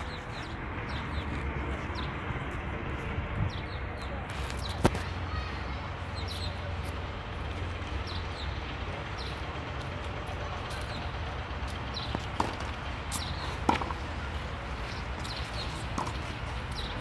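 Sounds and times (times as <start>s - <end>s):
tennis balls struck by racket: 12.0s - 14.1s, 15.5s - 17.0s.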